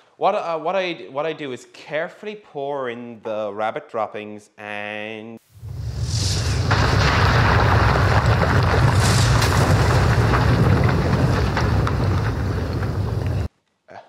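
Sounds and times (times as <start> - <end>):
rumbling rush of flames: 5.5 - 13.5.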